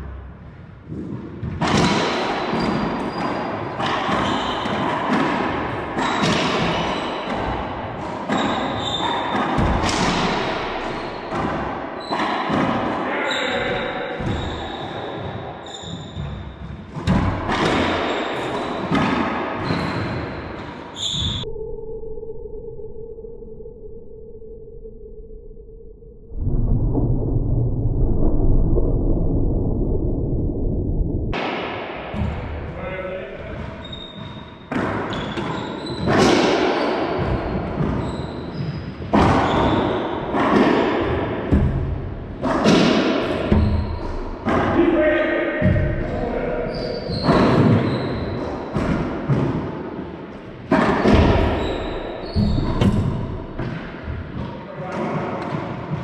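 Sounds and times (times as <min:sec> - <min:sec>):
sneakers squeaking on hardwood: 0:04.1 - 0:04.9, 0:08.3 - 0:09.8, 0:13.3 - 0:17.2, 0:17.8 - 0:21.4, 0:33.4 - 0:36.3, 0:37.2 - 0:40.0, 0:43.6 - 0:44.2, 0:46.7 - 0:49.0, 0:50.8 - 0:54.5
steady low tone: 0:21.3 - 0:31.4.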